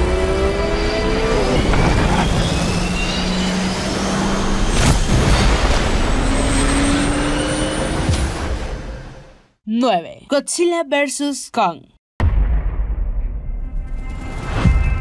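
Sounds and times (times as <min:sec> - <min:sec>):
jet engines whining: 0:00.0 - 0:09.2.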